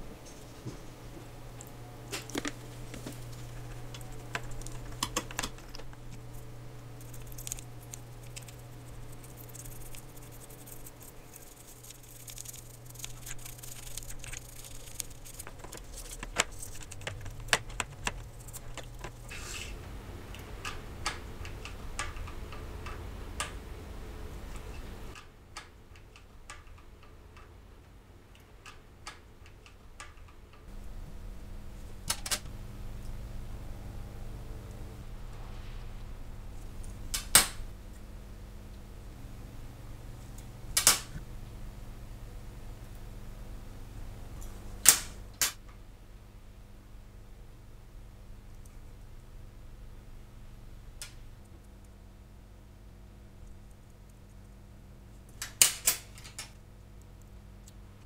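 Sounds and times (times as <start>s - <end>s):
steady low hum: 0.0s - 29.0s, 30.5s - 58.0s
brush scrubbing metal: 2.2s - 19.8s.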